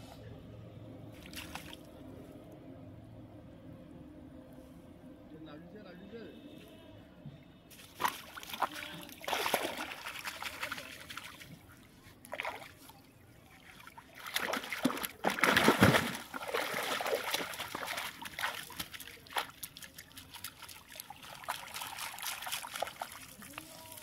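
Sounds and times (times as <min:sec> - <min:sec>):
water splashing and sloshing: 0:01.0 - 0:02.1, 0:07.7 - 0:24.0
water trickling and dripping: 0:16.4 - 0:24.0.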